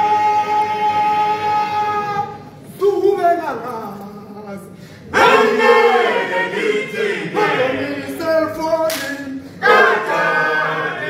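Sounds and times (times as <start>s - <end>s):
male choir singing in harmony: 5.1s - 11.0s.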